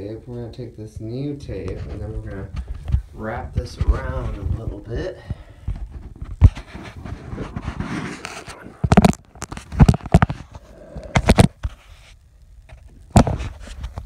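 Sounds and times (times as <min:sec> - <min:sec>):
handling scrapes and rustles: 0:05.8 - 0:10.6.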